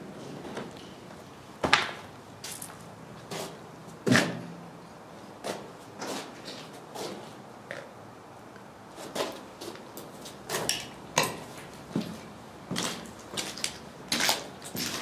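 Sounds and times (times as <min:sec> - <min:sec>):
footsteps crunching over rubble: 0:09.0 - 0:15.0.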